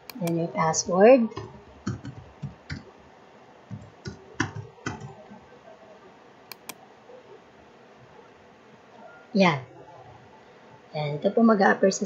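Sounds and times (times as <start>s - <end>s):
sharp clicks: 0.0s - 0.4s, 6.5s - 6.8s
computer keyboard typing: 1.4s - 2.9s, 3.7s - 5.2s.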